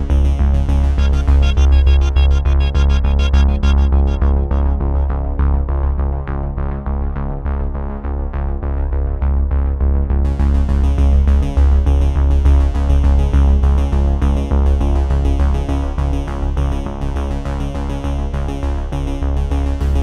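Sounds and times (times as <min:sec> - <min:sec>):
synthesizer music with heavy bass: 0:00.0 - 0:06.3.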